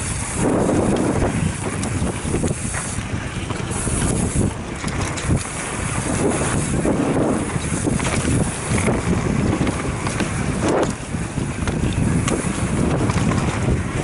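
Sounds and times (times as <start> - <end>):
bike clattering over bumps: 0.0 - 14.0
tyres rumbling on dirt: 0.0 - 14.0
wind buffeting microphone: 0.0 - 14.0.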